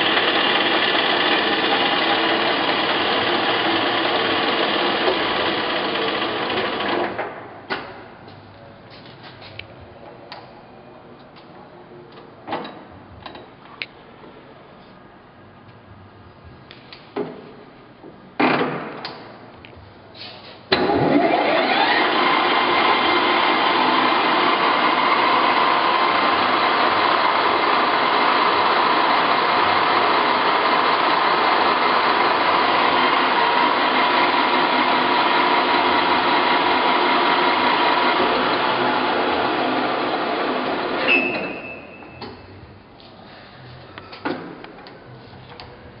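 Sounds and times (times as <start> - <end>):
lathe spindle whining: 0.0 - 7.0, 20.8 - 41.1.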